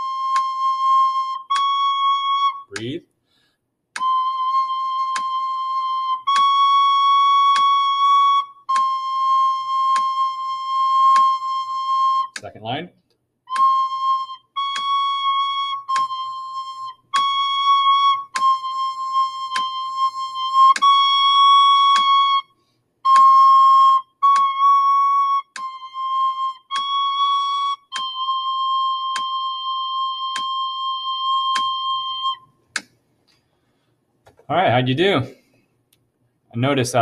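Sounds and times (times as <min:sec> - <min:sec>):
metronome clicking: 0:00.0 - 0:02.9, 0:04.0 - 0:12.6, 0:13.5 - 0:22.4, 0:23.1 - 0:33.0
recorder playing held notes: 0:00.0 - 0:02.9, 0:04.0 - 0:12.6, 0:13.5 - 0:22.5, 0:23.1 - 0:32.5.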